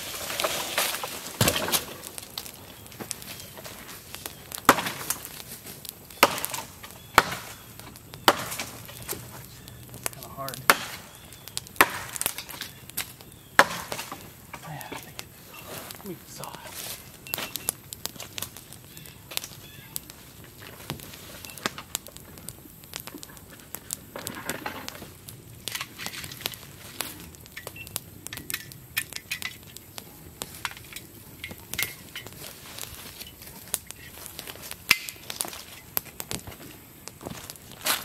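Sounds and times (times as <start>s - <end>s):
leaves crunching underfoot: 0.0s - 13.3s, 13.9s - 22.0s, 32.0s - 38.0s
twigs snapping: 0.0s - 38.0s.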